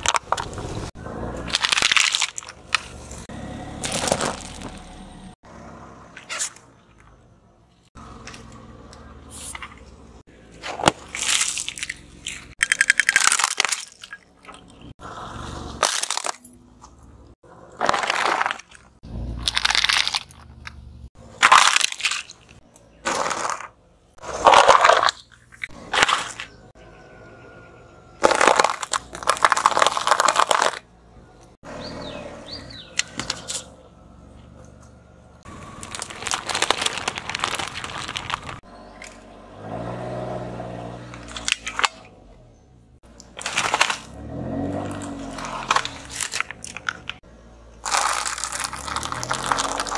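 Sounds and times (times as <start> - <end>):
tyre crushing plastic objects: 0.0 - 0.8, 1.4 - 4.9, 10.5 - 14.6, 15.7 - 17.0, 17.7 - 20.7, 21.4 - 26.6, 28.2 - 30.8, 35.5 - 39.2, 41.1 - 42.1, 43.1 - 47.2, 47.8 - 49.9.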